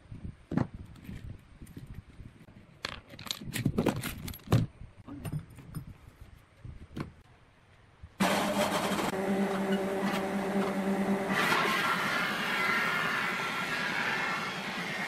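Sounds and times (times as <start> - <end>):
woodworking machine motor humming: 8.2 - 15.0.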